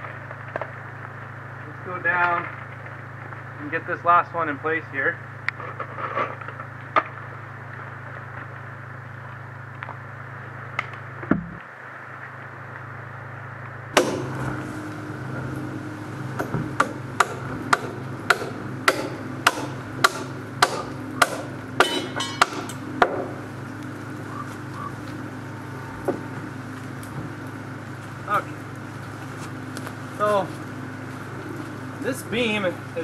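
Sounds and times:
hammer blows on wood: 0:14.0 - 0:14.6, 0:16.3 - 0:23.3.

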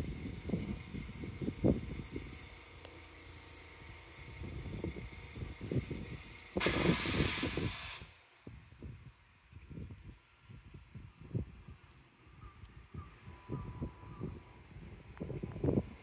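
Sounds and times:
wind buffeting microphone: 0:00.0 - 0:02.7, 0:03.7 - 0:16.0
steady hiss: 0:00.0 - 0:08.6.

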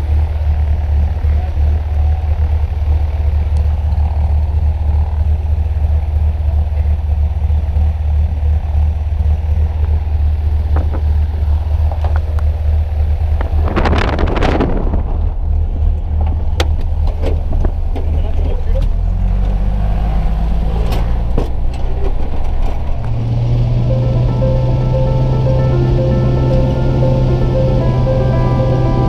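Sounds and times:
aircraft engine idling: 0:00.0 - 0:13.5, 0:22.9 - 0:29.0
wind rush on microphone: 0:13.4 - 0:16.6.

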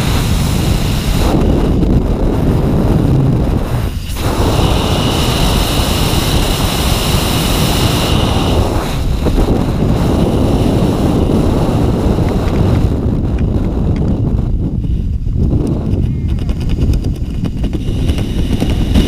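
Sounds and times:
freefall wind roar: 0:00.0 - 0:19.0.

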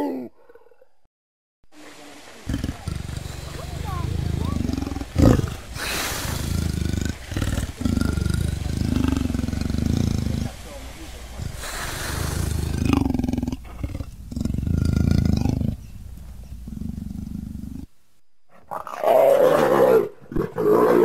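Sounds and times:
big cat growling: 0:02.4 - 0:17.9.

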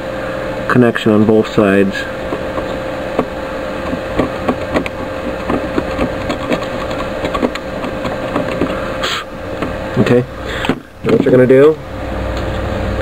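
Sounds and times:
steady hum: 0:00.0 - 0:13.0
blade scraping circuit board: 0:03.8 - 0:08.8.

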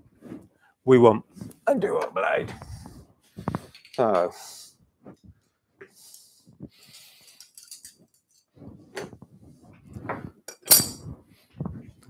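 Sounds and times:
metal parts clinking and knocking: 0:03.7 - 0:04.2, 0:07.2 - 0:08.5, 0:10.5 - 0:11.1.

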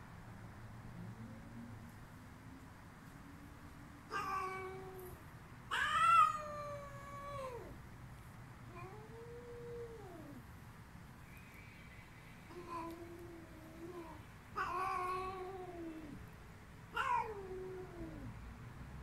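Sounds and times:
cat yowling: 0:04.1 - 0:07.8, 0:08.7 - 0:10.4, 0:12.5 - 0:16.2, 0:16.9 - 0:18.3.

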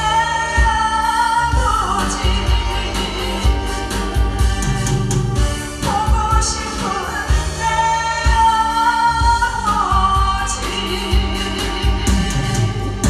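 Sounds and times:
amplified backing music with beat: 0:00.0 - 0:13.0
woman singing into a microphone: 0:00.0 - 0:13.0.

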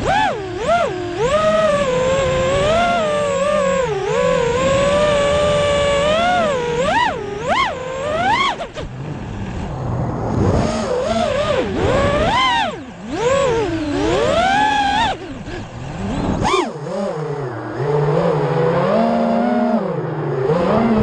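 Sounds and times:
quadcopter motors whining: 0:00.0 - 0:21.0
rough rushing sound: 0:08.6 - 0:19.4.

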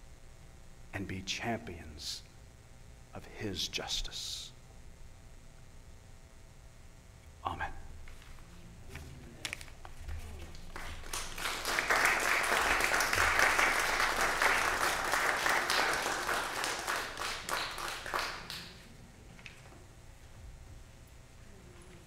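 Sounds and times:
crowd applauding: 0:10.5 - 0:18.9.

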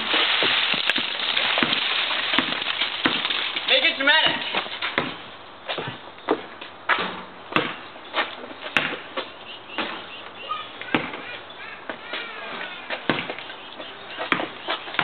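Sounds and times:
basketball bouncing on asphalt: 0:00.5 - 0:03.5, 0:04.2 - 0:12.1, 0:12.8 - 0:15.0
ball striking backboard and rim: 0:01.6 - 0:03.4, 0:04.3 - 0:07.9, 0:08.7 - 0:10.1, 0:10.8 - 0:11.3, 0:12.9 - 0:13.4, 0:14.2 - 0:15.0.

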